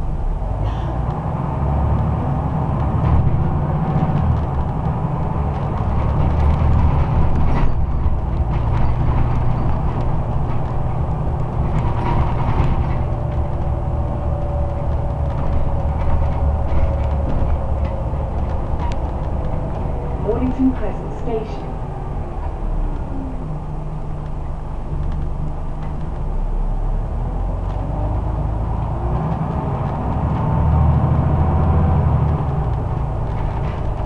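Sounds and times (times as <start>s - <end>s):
bus engine and road drone: 0.0s - 34.0s
interior fittings rattling: 3.0s - 23.0s.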